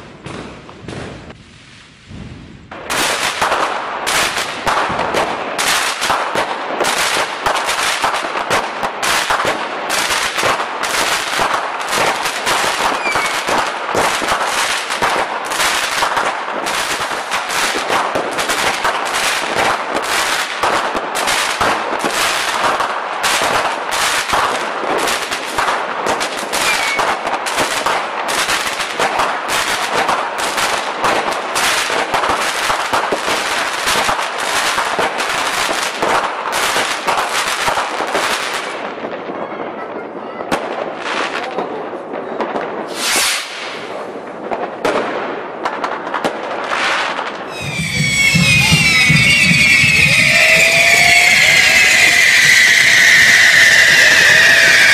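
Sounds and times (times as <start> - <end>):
fireworks cracking and popping: 0.0 - 39.3, 40.5 - 54.9.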